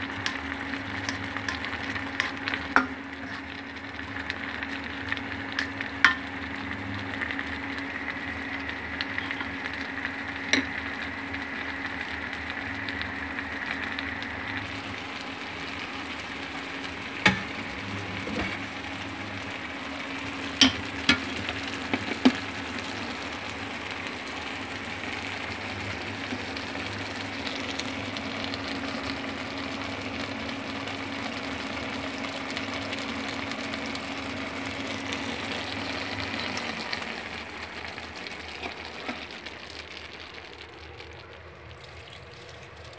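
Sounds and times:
food sizzling in a pan: 0:00.0 - 0:42.9
utensil clacking on pan: 0:00.2 - 0:03.4, 0:05.6 - 0:06.3, 0:20.6 - 0:21.3.

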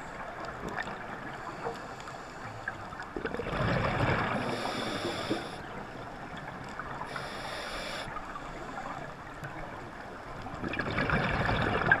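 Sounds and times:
exhaled bubbles gushing: 0:03.2 - 0:04.7, 0:10.6 - 0:12.0
diver breathing through regulator: 0:04.4 - 0:05.7, 0:07.1 - 0:09.0.

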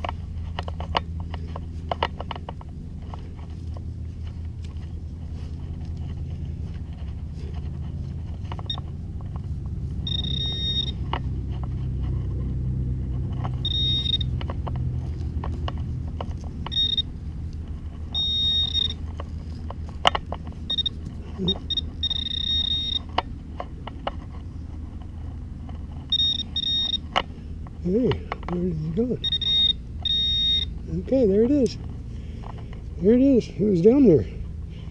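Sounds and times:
high-pitched pulsed alert beeps: 0:10.0 - 0:11.1, 0:13.6 - 0:14.4, 0:16.7 - 0:17.1, 0:18.1 - 0:19.0, 0:20.7 - 0:23.2, 0:26.1 - 0:27.0, 0:29.2 - 0:30.8.

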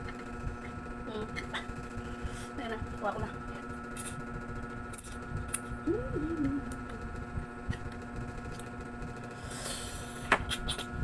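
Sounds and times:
steady background hum: 0:00.0 - 0:11.0
hummed tone: 0:03.8 - 0:08.6.

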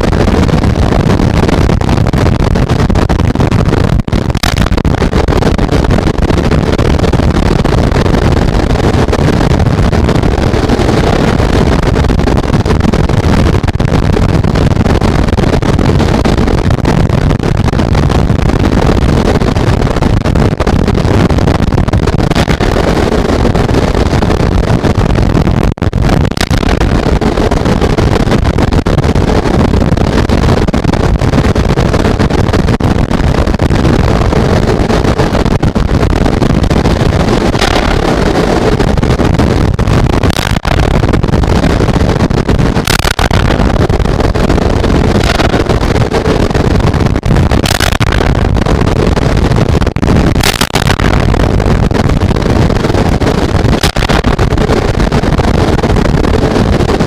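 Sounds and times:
wind on microphone: 0:00.0 - 0:57.0
heavy rain: 0:26.3 - 0:57.0.

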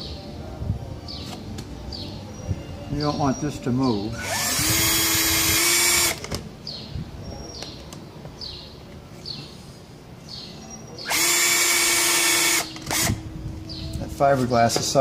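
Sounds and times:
cordless drill spinning: 0:04.2 - 0:06.2, 0:11.1 - 0:13.2.

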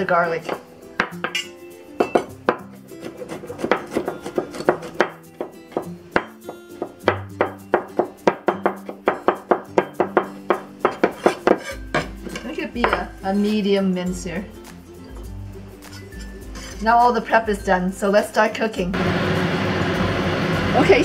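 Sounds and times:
cleaver chopping on wooden board: 0:02.2 - 0:13.0.

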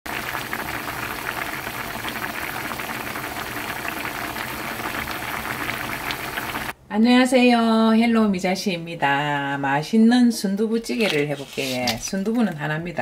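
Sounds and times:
stew boiling and bubbling: 0:00.1 - 0:06.8.

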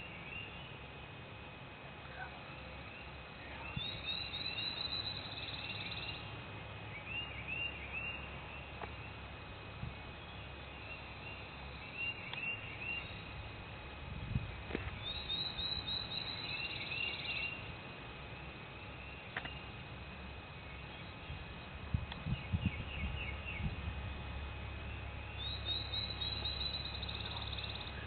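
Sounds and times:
bird song with fast trill: 0:00.0 - 0:00.8, 0:02.5 - 0:09.2, 0:09.9 - 0:13.5, 0:14.9 - 0:17.7, 0:20.6 - 0:23.8, 0:24.8 - 0:28.0
birds chirping: 0:00.0 - 0:01.1, 0:02.1 - 0:13.7, 0:14.5 - 0:28.0
low steady rumble: 0:00.0 - 0:28.0.

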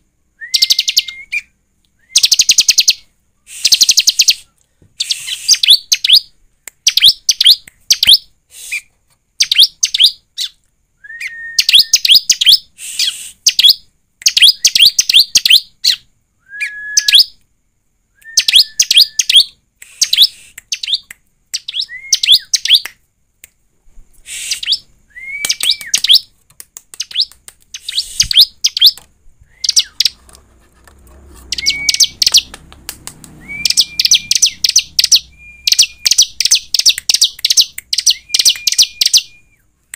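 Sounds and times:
bird sharp high chirps: 0:00.4 - 0:10.6, 0:11.2 - 0:17.4, 0:18.2 - 0:23.0, 0:24.2 - 0:26.3, 0:27.0 - 0:30.2, 0:31.4 - 0:39.7
short level whistle: 0:31.6 - 0:32.1, 0:33.4 - 0:34.6.

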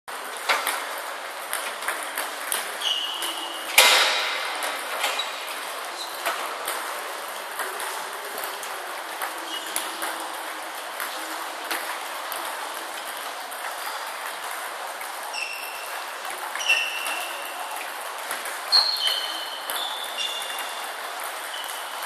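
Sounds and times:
table tennis balls clicking: 0:00.1 - 0:22.0
short high squeaks: 0:02.8 - 0:04.2, 0:15.3 - 0:17.5, 0:18.7 - 0:22.0.

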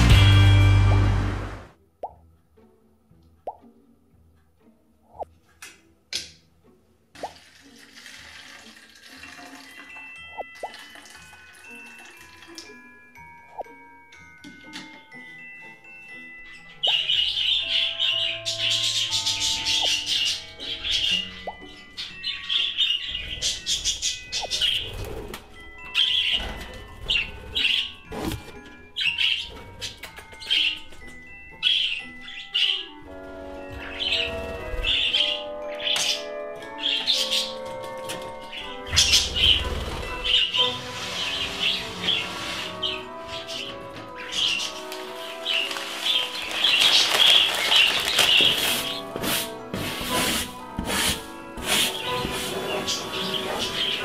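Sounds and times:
soft chime-like music: 0:00.0 - 0:05.5, 0:08.6 - 0:54.0
liquid pouring into bottle: 0:07.2 - 0:12.8
budgerigars chirping: 0:16.4 - 0:25.0, 0:29.0 - 0:30.8, 0:31.5 - 0:37.6, 0:38.4 - 0:49.2, 0:51.9 - 0:54.0.

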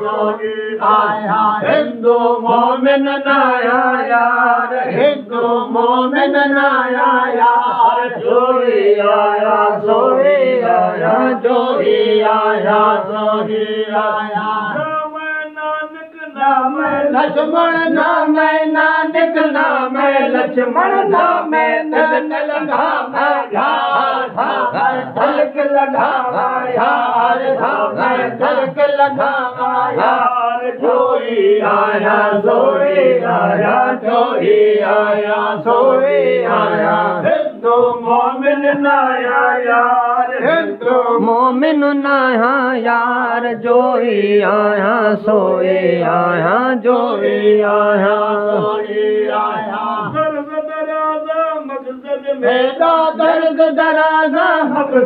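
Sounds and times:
man singing devotional chant: 0:00.0 - 0:55.0.

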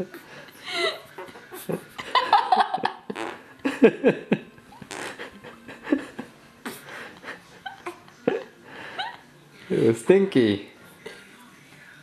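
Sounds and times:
baby passing gas: 0:04.8 - 0:05.4.

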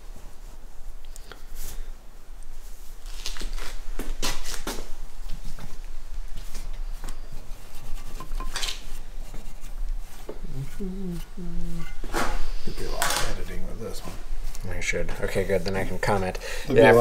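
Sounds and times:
light clicks and rubbing: 0:06.4 - 0:11.4.

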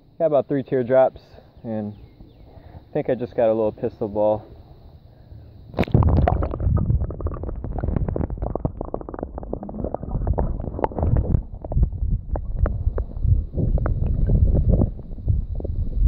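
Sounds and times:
muffled underwater rumble: 0:05.2 - 0:16.0
stones clicking underwater: 0:05.8 - 0:15.7.

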